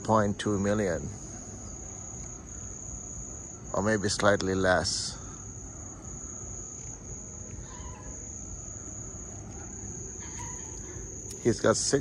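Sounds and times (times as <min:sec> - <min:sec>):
night insects trilling: 0:00.0 - 0:12.0.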